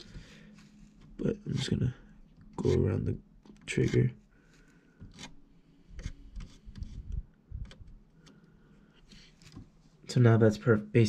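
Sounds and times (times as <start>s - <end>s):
razor blade scraping plastic: 5.0s - 5.4s, 6.0s - 7.2s.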